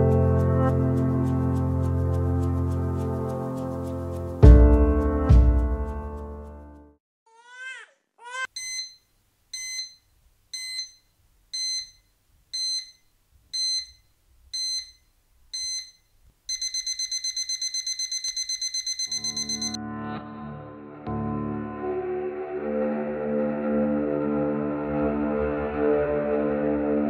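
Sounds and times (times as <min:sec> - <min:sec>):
alarm clock beeping: 0:08.6 - 0:10.0, 0:10.6 - 0:13.0, 0:13.6 - 0:14.0, 0:14.6 - 0:15.0, 0:15.6 - 0:19.8.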